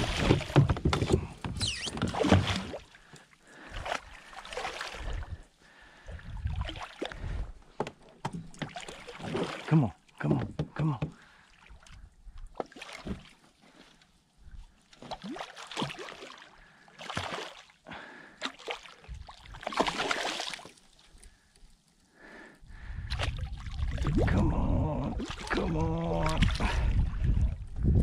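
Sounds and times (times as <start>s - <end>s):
grunt-like vocal sound: 24.2s - 26.9s.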